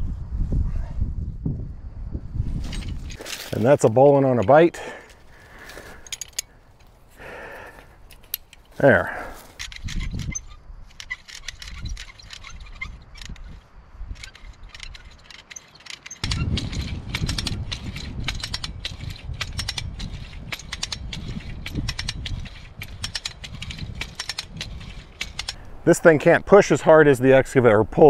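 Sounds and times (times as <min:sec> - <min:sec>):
ratchet pawl clicking rapidly: 0:14.2 - 0:25.6.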